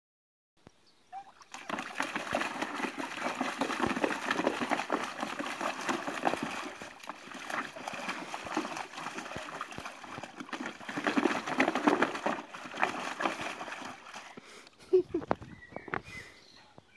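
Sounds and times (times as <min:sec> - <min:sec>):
water splashing in paddling pool: 0:01.2 - 0:14.6.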